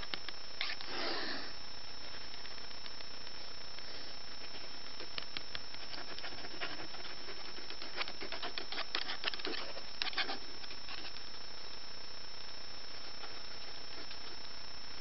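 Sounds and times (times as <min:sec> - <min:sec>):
steady hiss: 0:00.0 - 0:15.0
thin high whine: 0:00.0 - 0:15.0
pen scratching on paper: 0:05.7 - 0:11.2.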